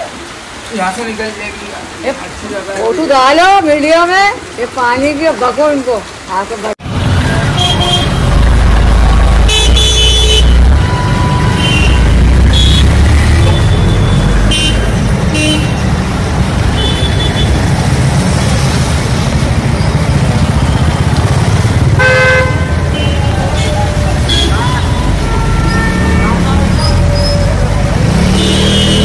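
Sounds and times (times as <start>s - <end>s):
street noise low rumble: 6.8s - 29.0s
vehicle horns tooting: 7.2s - 8.4s, 9.4s - 15.8s, 16.7s - 17.6s, 21.9s - 29.0s.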